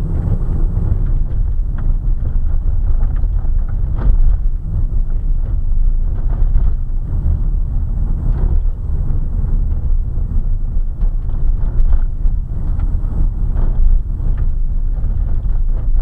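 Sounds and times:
tyres rumbling on gravel: 0.0 - 16.0.

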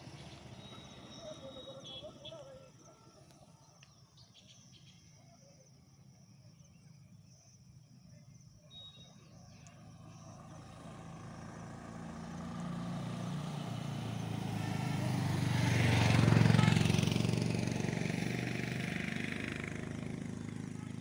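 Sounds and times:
motorcycle engine approaching: 0.0 - 2.8, 9.1 - 21.0.

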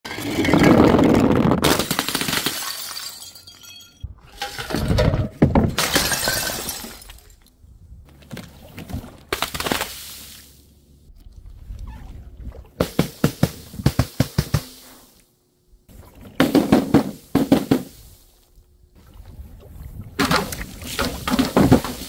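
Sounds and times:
glass bottles shattering: 1.7 - 7.4
glass shards ringing: 2.6 - 4.0.

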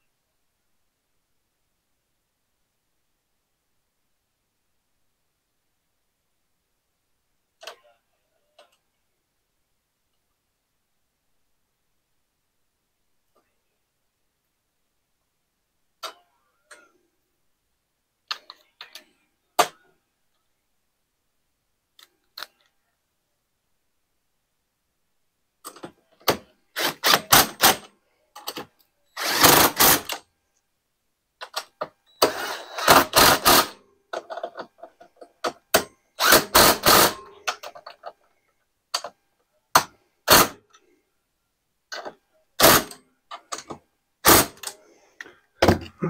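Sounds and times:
cordless drill driving bolts: 26.8 - 27.9, 29.2 - 30.2, 32.2 - 33.8, 35.8 - 37.2, 44.2 - 44.7.

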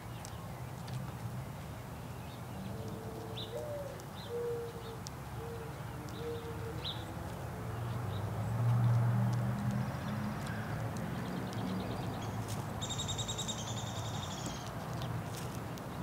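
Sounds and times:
dove cooing: 2.7 - 7.0.

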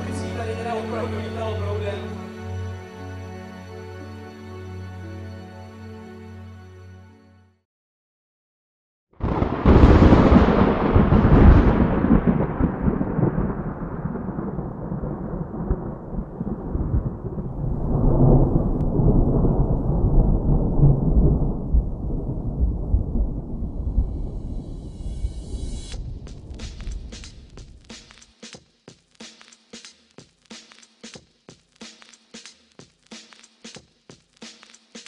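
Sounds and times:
thunder crack and rumble: 9.2 - 27.9.

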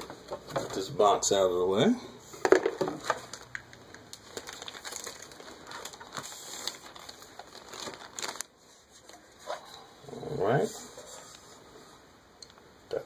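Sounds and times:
plastic bag crinkling: 2.5 - 9.7.

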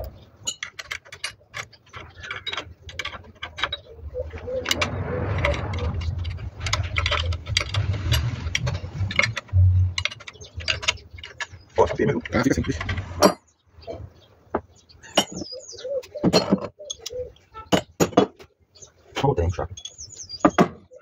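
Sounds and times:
metal tools clinking: 0.4 - 13.5, 15.1 - 15.5, 19.5 - 20.6.

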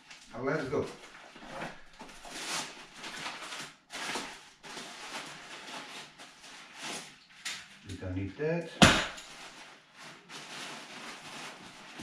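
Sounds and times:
nylon fabric rustling: 9.1 - 12.0.

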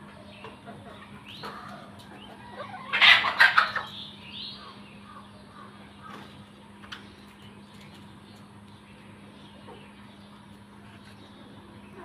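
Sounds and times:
chickens clucking: 0.0 - 12.0.

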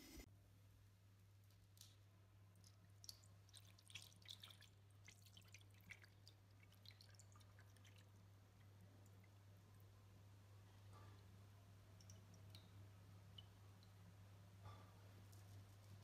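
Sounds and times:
liquid pouring and splashing: 2.6 - 9.4.

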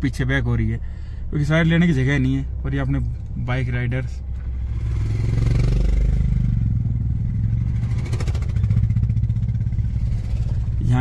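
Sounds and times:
vehicle engines running: 0.0 - 11.0
motorcycle engine: 4.2 - 11.0.

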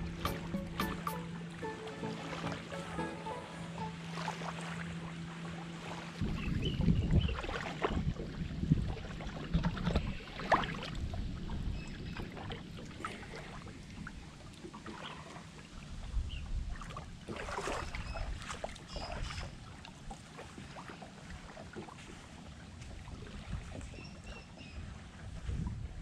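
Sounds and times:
wind rumbling on microphone: 6.2 - 14.5, 15.8 - 19.7, 21.2 - 26.0.

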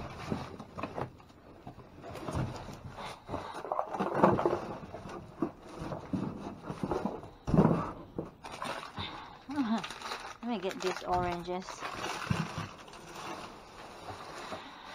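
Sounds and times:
packages and bags rustling: 0.0 - 14.9.

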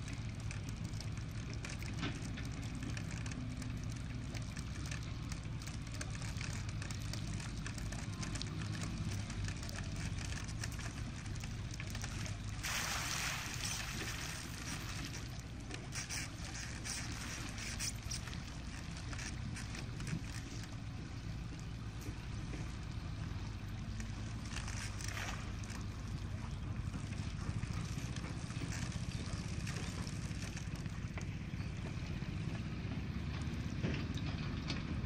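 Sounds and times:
water splashing and pouring: 0.0 - 20.6.

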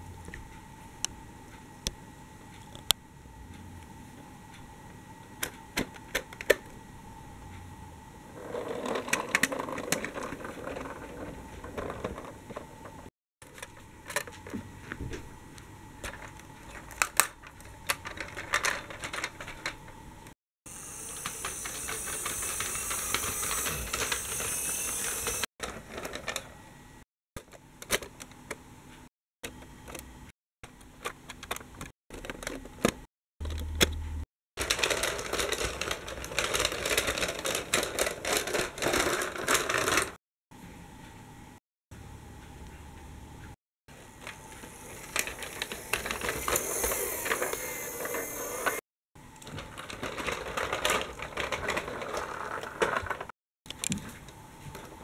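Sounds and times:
toy trains rattling on plastic track: 8.4 - 12.6, 17.9 - 19.8, 20.8 - 26.4, 34.6 - 40.2, 44.2 - 48.8, 49.5 - 53.3.

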